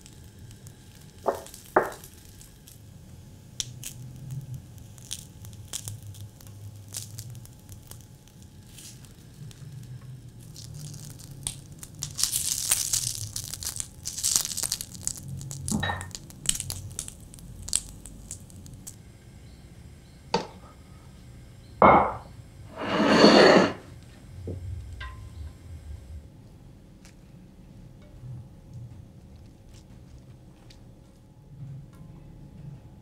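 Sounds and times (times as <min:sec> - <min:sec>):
skewers sizzling on a grill pan: 0:00.0 - 0:19.0
sharp knocks against a pan: 0:01.3 - 0:02.0, 0:21.8 - 0:22.3.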